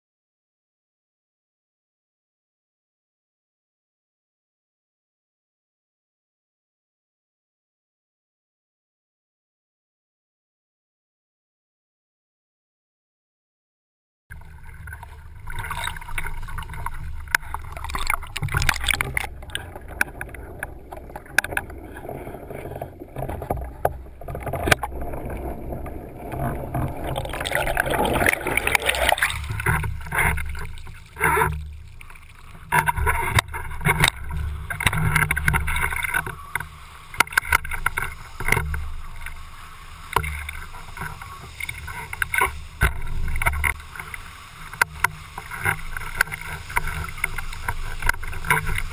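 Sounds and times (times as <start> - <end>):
rushing water: 14.3 - 48.9
underwater gurgling rush: 14.3 - 48.9.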